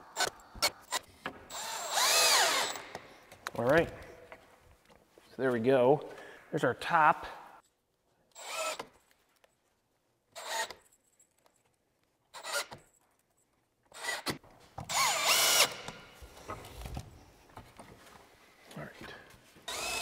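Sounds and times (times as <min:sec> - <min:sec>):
cordless drill driving screws: 0:00.0 - 0:03.1, 0:08.3 - 0:09.0, 0:10.4 - 0:10.8, 0:12.3 - 0:12.8, 0:13.9 - 0:16.1, 0:19.6 - 0:20.0.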